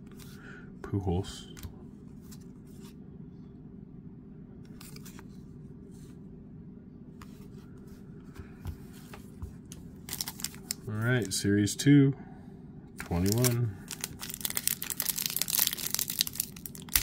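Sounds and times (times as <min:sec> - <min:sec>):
steady low hum: 0:00.0 - 0:17.0
trading cards being handled: 0:08.8 - 0:11.4, 0:13.0 - 0:17.0.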